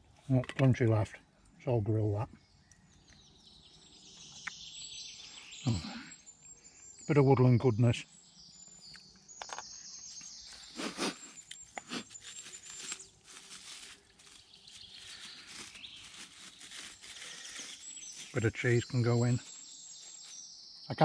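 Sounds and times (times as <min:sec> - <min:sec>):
small birds chirping: 0:00.0 - 0:21.0
plastic bag crinkling: 0:11.0 - 0:18.4.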